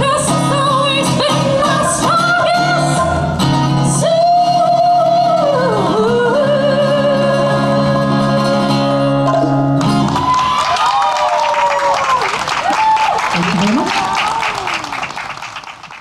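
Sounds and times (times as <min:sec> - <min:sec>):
woman singing into microphone: 0:00.0 - 0:09.4
acoustic guitar: 0:00.0 - 0:10.6
applause: 0:09.8 - 0:16.0.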